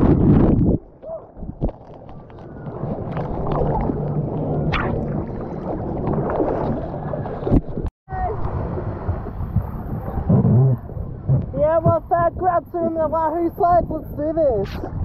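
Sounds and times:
muffled water sloshing and gurgling: 0.0 - 12.0.

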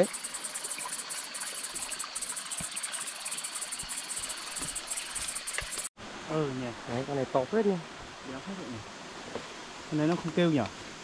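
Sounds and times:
insects trilling: 0.0 - 5.9
thin steady high tone: 0.0 - 5.9.

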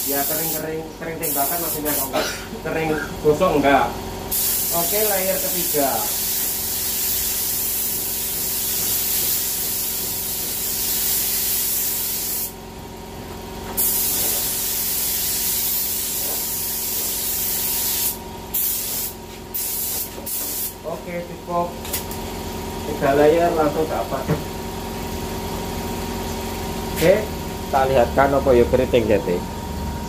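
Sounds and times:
paint spray gun hissing: 0.0 - 2.2, 4.3 - 12.6, 13.8 - 20.9.

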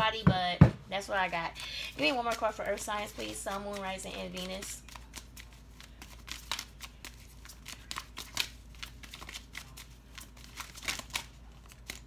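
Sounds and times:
cards being shuffled: 2.0 - 12.0.

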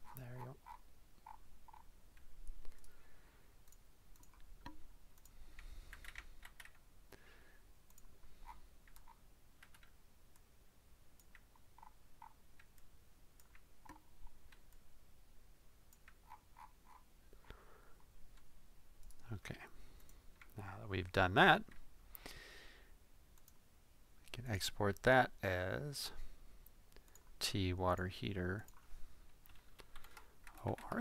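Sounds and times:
computer mouse and keyboard clicks: 0.0 - 3.0, 3.7 - 6.8, 7.9 - 10.0, 11.2 - 14.8.

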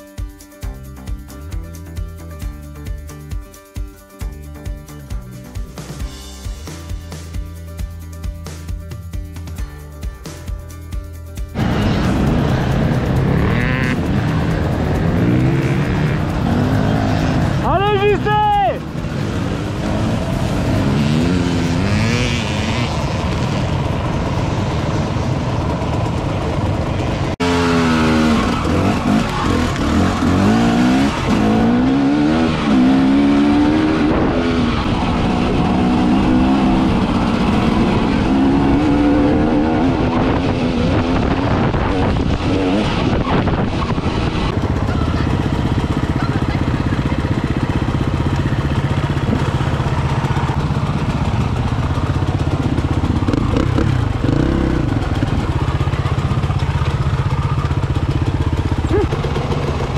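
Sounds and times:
motorcycle engines revving: 11.5 - 59.9.

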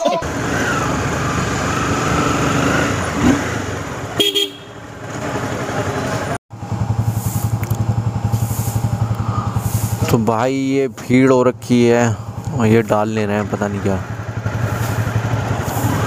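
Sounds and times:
motorcycle engine running: 0.2 - 16.0
motorcycle horn toot: 4.2 - 4.8.

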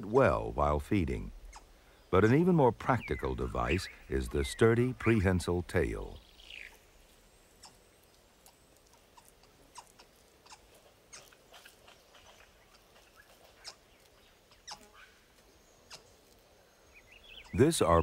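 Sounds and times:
soft clicks and crackles: 7.6 - 16.5.

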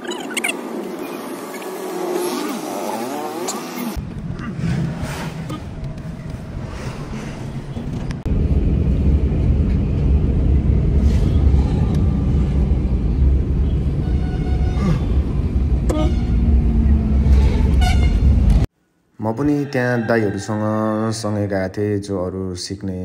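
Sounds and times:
road and wind noise in car: 0.0 - 18.7
vehicle horn: 13.8 - 15.1, 15.9 - 16.6, 17.4 - 18.5.

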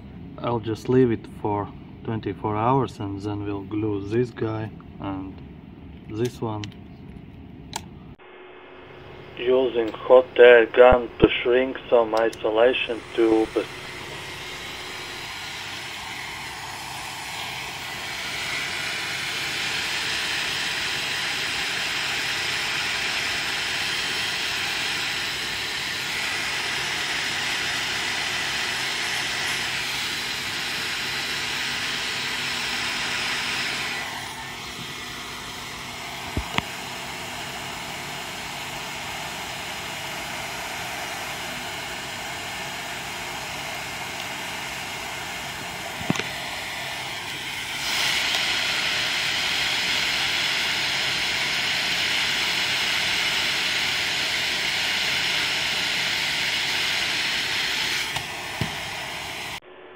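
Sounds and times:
hot air gun blowing: 12.4 - 59.6.

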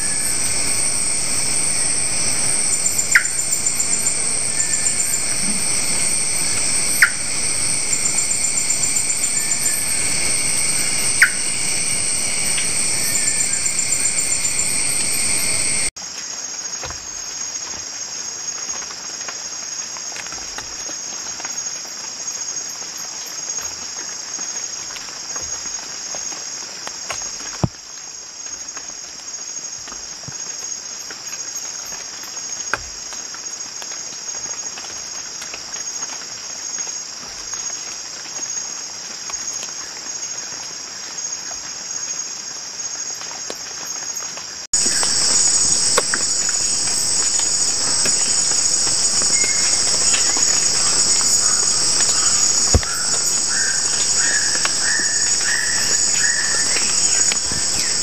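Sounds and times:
insect chorus shrilling: 0.0 - 15.9, 42.8 - 58.0.

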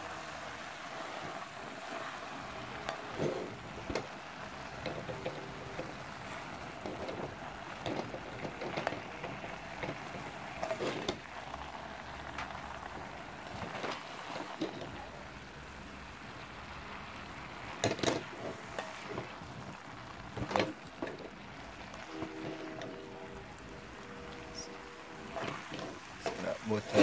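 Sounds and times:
cabbage sizzling in a pan: 0.0 - 27.0
spoon scraping and knocking pan: 2.8 - 11.3, 25.2 - 27.0.

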